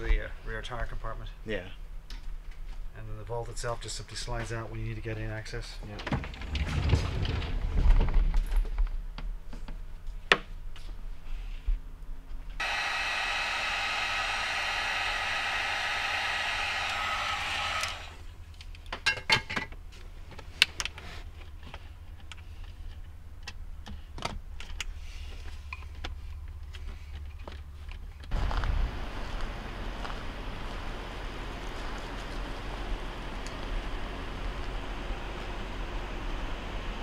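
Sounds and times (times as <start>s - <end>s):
small power tool running: 12.6s - 18.4s.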